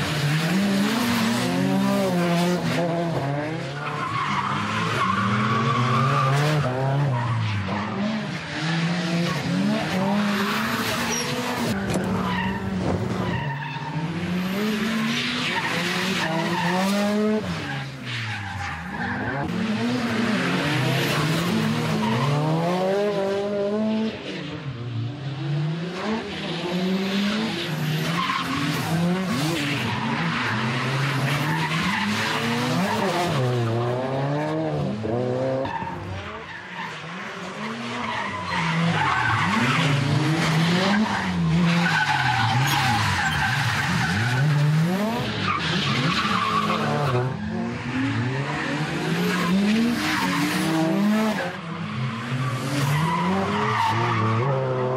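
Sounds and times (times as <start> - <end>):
car engines revving: 0.0 - 54.9
tyres squealing and skidding: 0.1 - 23.1, 26.1 - 33.8, 35.4 - 54.9.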